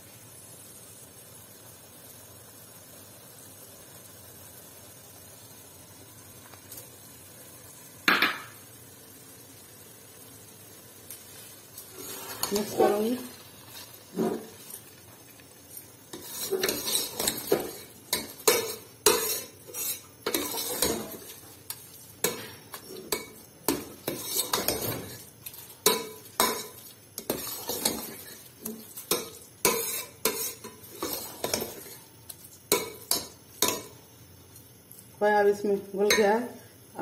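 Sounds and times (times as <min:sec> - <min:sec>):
spoon scraping a steel pot: 0:11.9 - 0:13.1, 0:16.1 - 0:21.3, 0:22.2 - 0:32.0.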